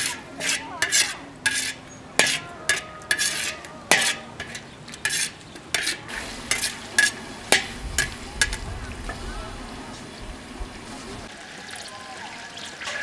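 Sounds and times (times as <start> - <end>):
wok ringing: 0.0 - 9.2
metal ladle scraping a wok: 0.0 - 9.3
food sizzling in oil: 0.0 - 13.0.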